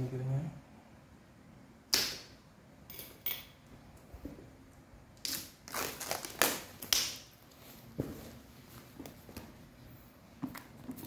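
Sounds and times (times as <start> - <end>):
plastic wrapping crackling: 5.2 - 7.9.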